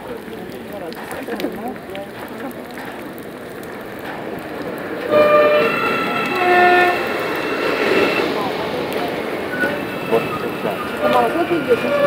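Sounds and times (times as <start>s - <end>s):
electric train running past: 3.5s - 12.0s
two-note train horn: 5.0s - 8.7s, 9.4s - 12.0s.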